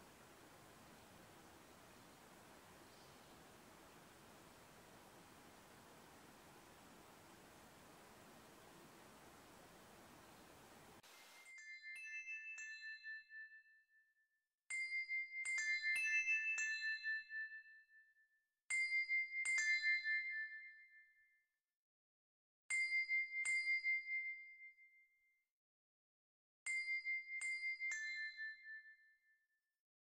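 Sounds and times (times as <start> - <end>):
bell-like chime notes: 11.4 - 13.6.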